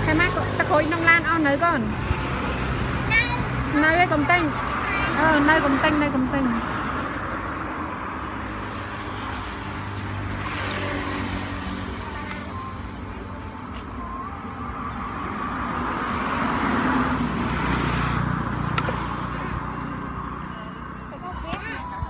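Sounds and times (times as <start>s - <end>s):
road traffic noise: 0.0s - 22.0s.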